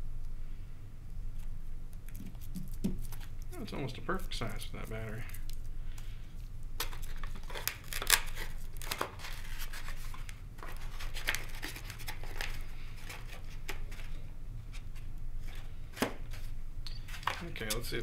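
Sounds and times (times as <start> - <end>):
rustling of plastic and foam: 6.4 - 18.0.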